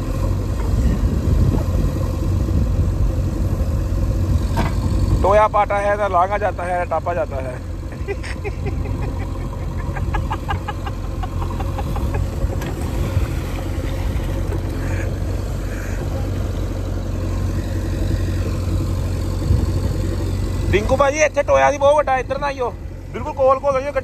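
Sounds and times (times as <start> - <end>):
diesel engine running: 0.0 - 24.0
bucket digging wet mud: 12.5 - 15.2.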